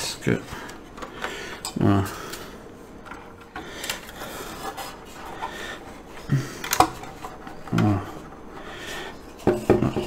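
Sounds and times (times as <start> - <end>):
plastic model rubbing and scraping: 4.2 - 5.4.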